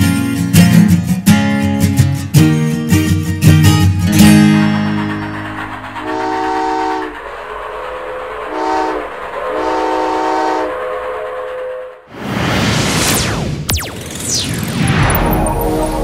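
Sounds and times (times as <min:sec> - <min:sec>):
steam locomotive whistle blasts: 0:06.0 - 0:07.2, 0:08.4 - 0:12.0.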